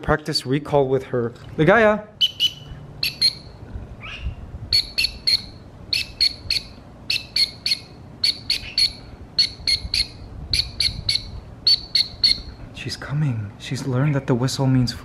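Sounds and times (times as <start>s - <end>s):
high recall whistle notes: 2.2s - 3.5s.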